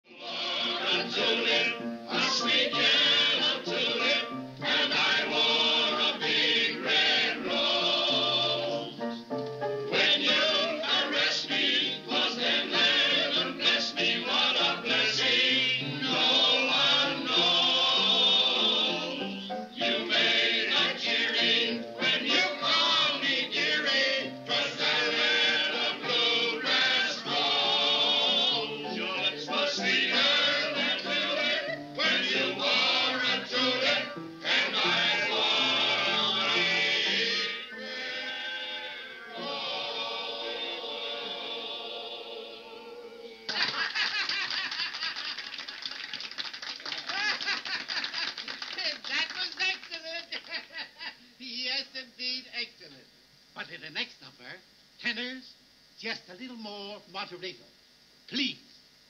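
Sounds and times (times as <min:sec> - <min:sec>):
mixed choir singing: 0:00.0 - 0:09.2, 0:09.8 - 0:43.5
upright piano accompaniment: 0:00.4 - 0:16.3, 0:17.0 - 0:37.7.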